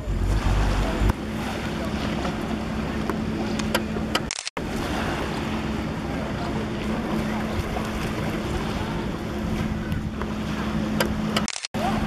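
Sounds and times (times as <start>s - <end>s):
wind blowing over microphone: 6.9s - 12.0s.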